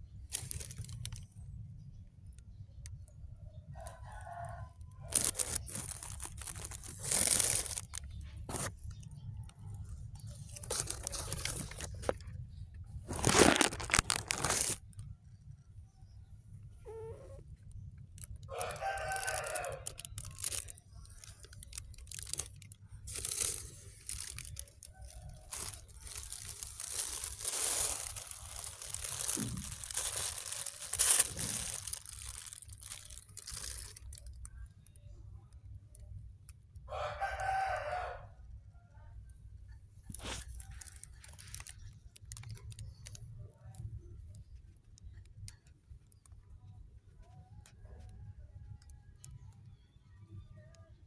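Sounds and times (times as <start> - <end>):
plastic bag crinkling: 0.3 - 1.3, 5.0 - 9.2, 9.8 - 12.4, 13.0 - 15.1, 18.1 - 34.5, 40.1 - 43.3.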